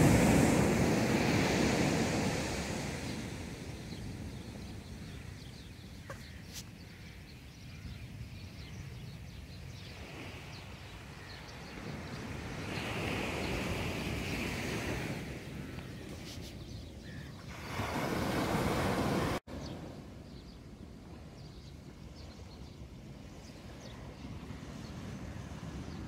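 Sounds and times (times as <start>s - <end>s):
surf washing onto beach: 0.0s - 5.0s, 17.4s - 19.9s
wind on microphone: 0.0s - 7.0s.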